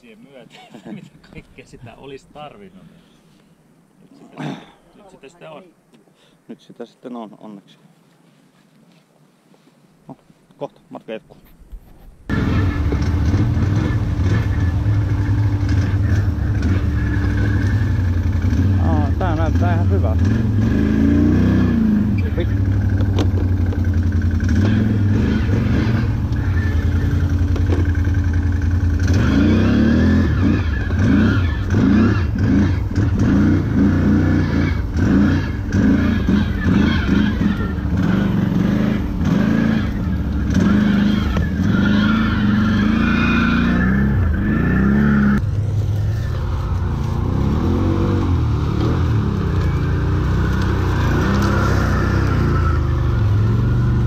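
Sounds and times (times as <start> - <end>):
atv engine revving: 12.3 - 54.0.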